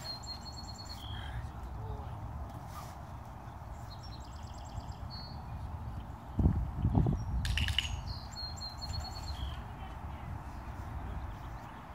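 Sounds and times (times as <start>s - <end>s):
small birds chirping trills: 0.0s - 2.0s, 3.3s - 10.0s.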